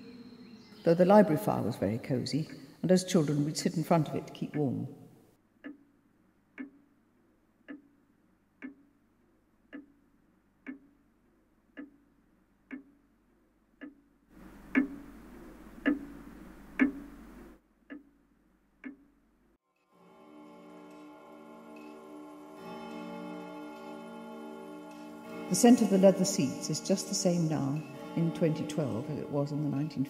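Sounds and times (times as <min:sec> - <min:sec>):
mechanical clock ticking: 0:06.6 - 0:06.8, 0:07.6 - 0:08.0, 0:08.6 - 0:08.9, 0:09.7 - 0:10.0, 0:10.6 - 0:11.0, 0:11.7 - 0:12.0, 0:12.6 - 0:13.0, 0:13.8 - 0:18.2, 0:18.8 - 0:19.2.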